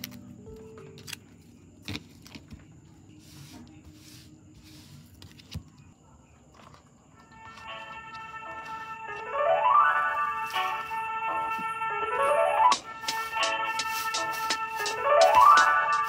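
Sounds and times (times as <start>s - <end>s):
soft rustles: 1.0s - 9.0s.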